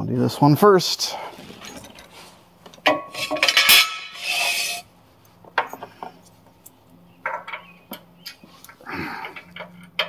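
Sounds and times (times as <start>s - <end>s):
metal bolt scraping and clinking: 1.4s - 4.9s, 7.2s - 10.0s
metal clatter: 2.8s - 4.8s.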